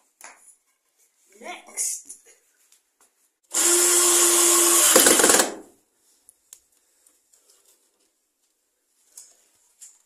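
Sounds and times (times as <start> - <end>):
mitre saw cutting wood: 3.5 - 5.6.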